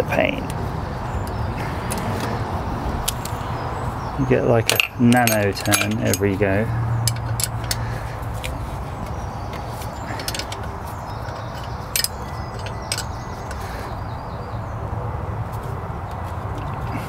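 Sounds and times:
wrench clicking on bolt: 4.7s - 6.4s, 7.0s - 7.8s, 10.0s - 13.6s.

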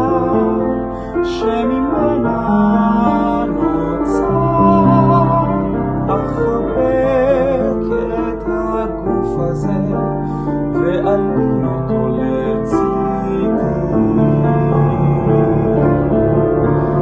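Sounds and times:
man singing: 0.0s - 17.0s
piano chords: 0.0s - 17.0s.

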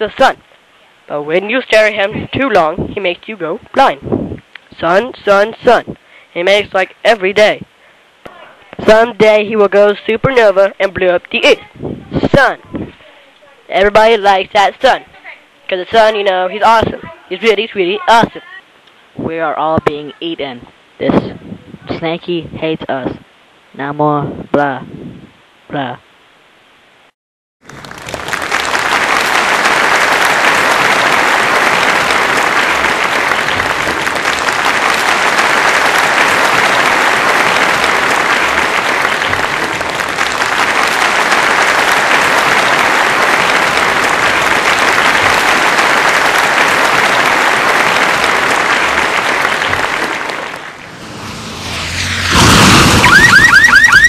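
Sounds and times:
applause: 27.6s - 51.1s, 53.1s - 54.0s.

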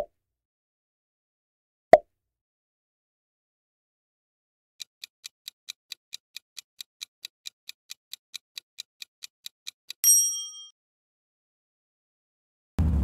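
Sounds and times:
clock-like ticking: 4.8s - 10.0s
ringing chime: 10.0s - 10.7s.

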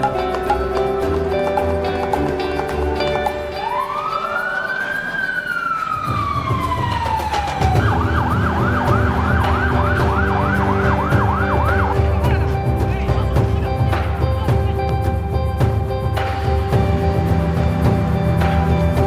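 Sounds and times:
fire engine siren: 3.5s - 12.1s.

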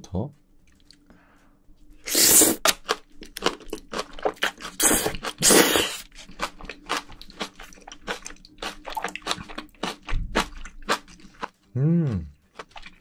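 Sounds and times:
chewing crunchy food: 2.1s - 11.6s, 12.5s - 13.0s.

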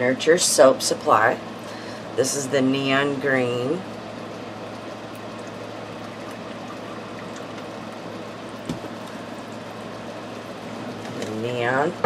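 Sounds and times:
liquid pouring into a bowl: 3.8s - 11.0s.

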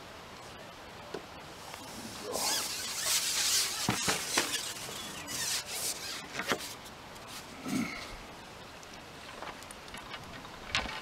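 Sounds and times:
fishing pole sections rubbing: 1.6s - 7.5s
sharp clicks of pole joint: 2.4s - 6.6s.

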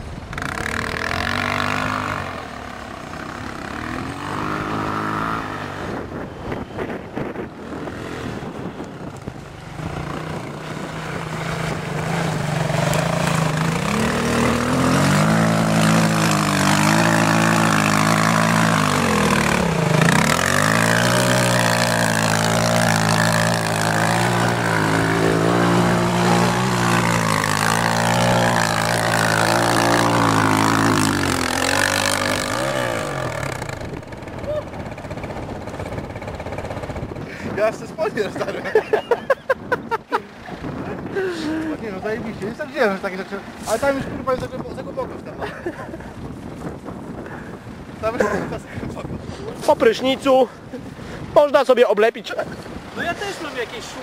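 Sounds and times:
quad engine revving: 0.0s - 39.3s
quad churning through muddy water: 10.9s - 37.6s.

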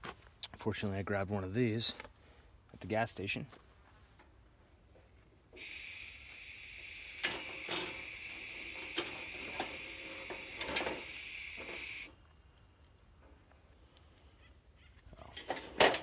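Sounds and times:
gas hissing from burner: 5.6s - 12.1s.

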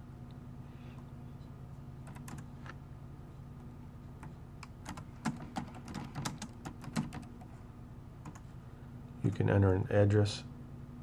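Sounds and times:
steady low hum: 0.0s - 11.0s
keyboard typing: 2.0s - 2.5s, 4.2s - 7.5s, 8.2s - 8.5s.

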